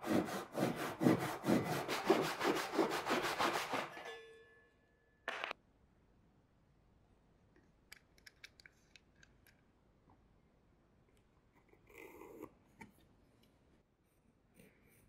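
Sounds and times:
wooden block rubbing on workbench: 0.0 - 3.9
faint small clicks: 7.5 - 9.7.

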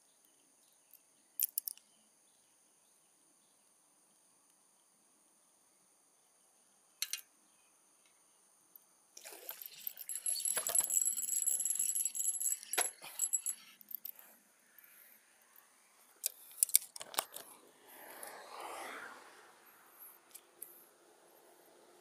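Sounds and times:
jangling clinking handling noise: 9.4 - 14.4.

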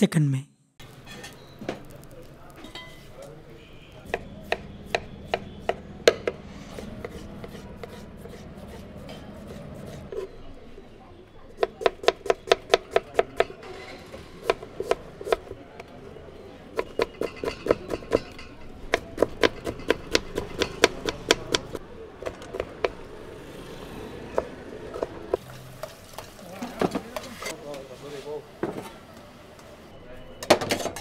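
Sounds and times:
knife chopping on wooden board: 4.1 - 10.0.

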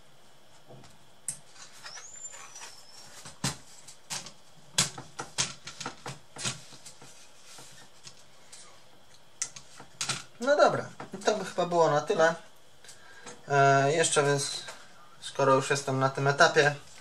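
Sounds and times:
high plastic squeak: 1.6 - 3.3.

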